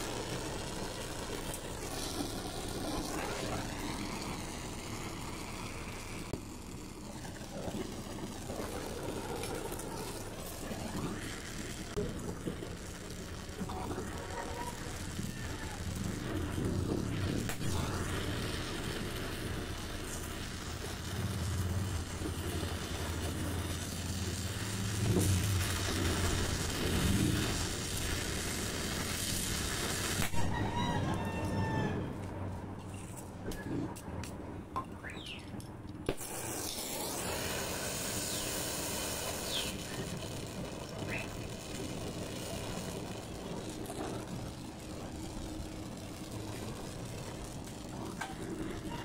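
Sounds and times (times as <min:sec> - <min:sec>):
gas torch flame hissing: 0:00.0 - 0:30.7, 0:33.0 - 0:49.0
torch lighting pop: 0:14.9 - 0:30.5, 0:33.5 - 0:40.2
bird chirps: 0:34.9 - 0:35.5.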